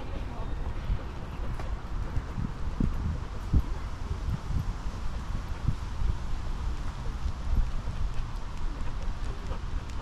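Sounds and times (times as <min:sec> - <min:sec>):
wind rumbling on microphone: 0:00.0 - 0:10.0
footsteps walking: 0:05.0 - 0:10.0.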